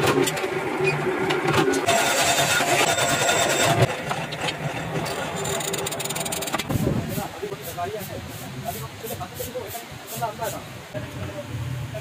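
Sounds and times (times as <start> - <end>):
metal-bending machine running: 0.0 - 7.0
sharp metal clicks: 5.1 - 6.7.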